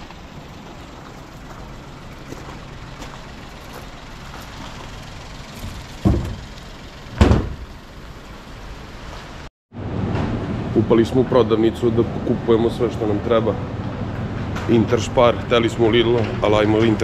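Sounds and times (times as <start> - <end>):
low vehicle hum: 0.0 - 17.0
heavy thumps: 7.2 - 7.7.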